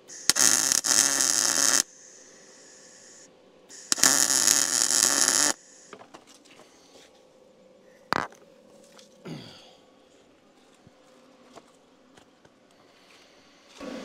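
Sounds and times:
arc welding: 0.0 - 6.0.

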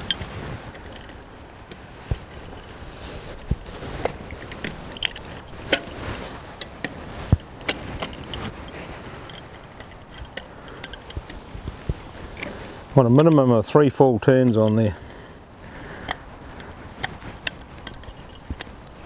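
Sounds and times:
ratchet metallic clicks: 6.6 - 11.5, 16.0 - 19.0.

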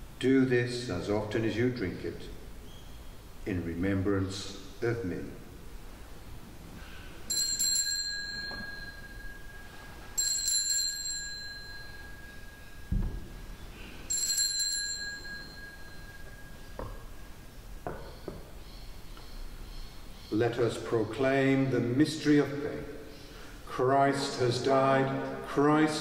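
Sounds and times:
small bell ringing: 7.3 - 12.9, 13.8 - 16.8
soft knocks: 12.9 - 13.4, 16.8 - 17.1.

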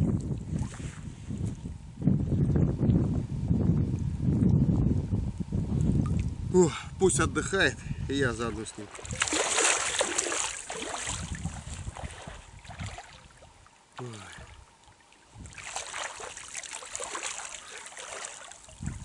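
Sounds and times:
wind buffeting microphone: 0.0 - 13.6, 15.3 - 19.0
flowing river water: 8.6 - 19.0.

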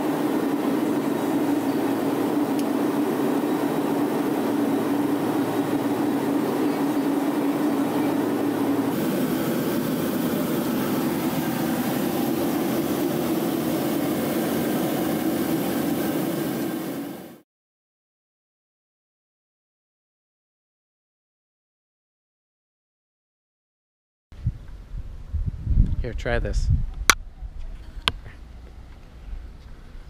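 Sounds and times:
turboprop cabin drone: 0.0 - 17.4.

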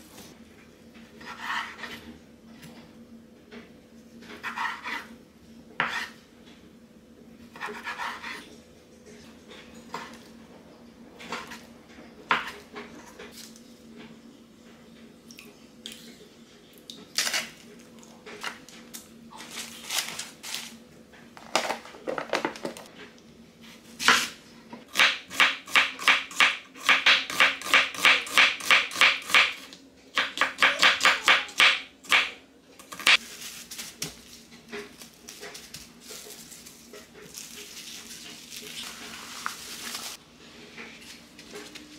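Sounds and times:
knife chopping onion on board: 24.9 - 32.4.

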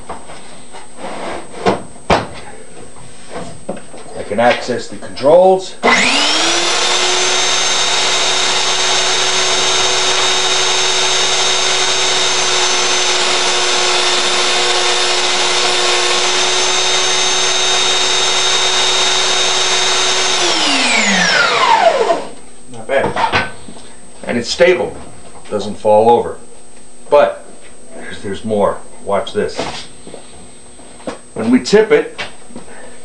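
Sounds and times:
belt sander whine: 5.8 - 22.4.

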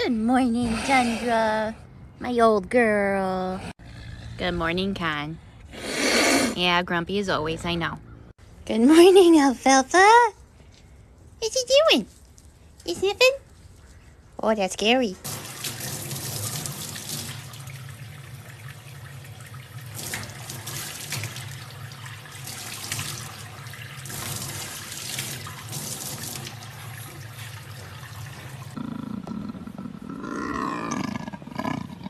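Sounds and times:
tap water splashing into metal sink: 15.3 - 28.2
big cat vocalising: 28.8 - 32.0.

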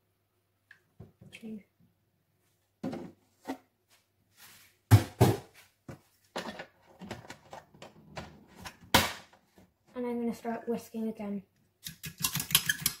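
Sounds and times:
kitchen items knocking on worktop: 4.9 - 5.5.

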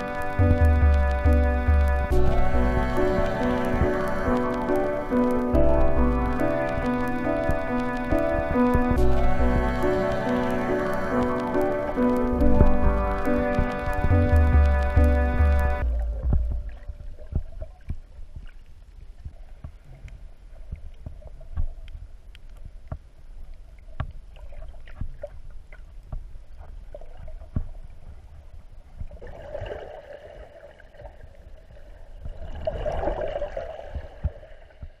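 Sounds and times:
muffled rushing noise: 0.0 - 17.6
sharp clicks and crackles: 0.0 - 24.2
underwater rumble of moving water: 0.0 - 35.0.

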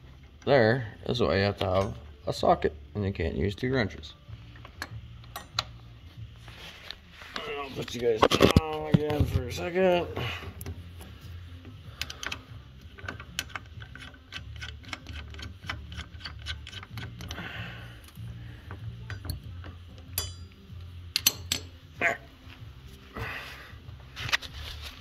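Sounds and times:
steady low hum: 0.0 - 25.0
metal tools clicking and clinking: 1.6 - 2.1, 4.6 - 5.8, 12.0 - 17.4, 18.7 - 21.9.

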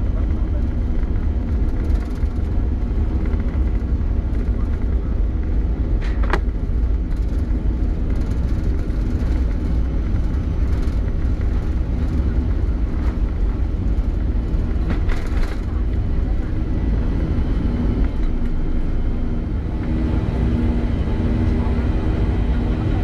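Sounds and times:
airliner cabin drone: 0.0 - 23.0.

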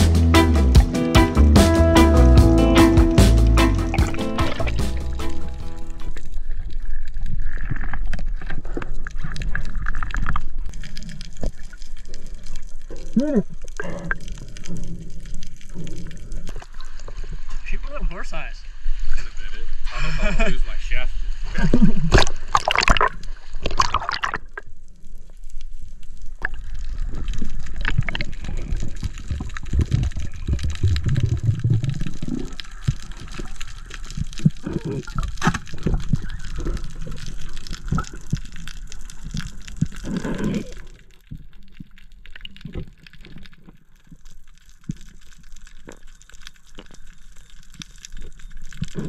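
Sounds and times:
small underwater clicks: 6.0 - 17.2, 22.8 - 49.0
underwater gurgling and bubbling: 21.6 - 24.7, 26.3 - 49.0.

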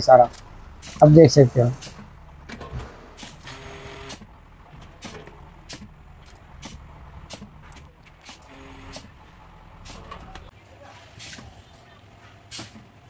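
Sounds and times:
bottling machine humming: 0.6 - 10.5.

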